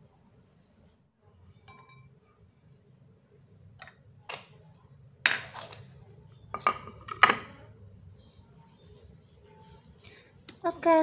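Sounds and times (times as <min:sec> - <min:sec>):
kitchenware clinking and knocking: 0:01.6 - 0:02.1, 0:05.2 - 0:05.8, 0:06.5 - 0:07.7.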